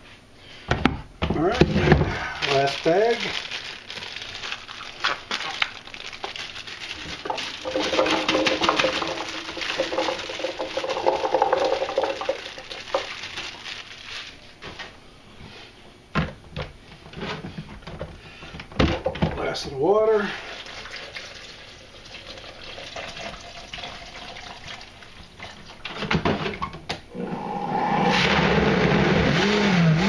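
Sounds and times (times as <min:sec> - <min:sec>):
cranberries rattling into plastic jar: 0:04.5 - 0:13.6
steady hum: 0:27.0 - 0:29.6.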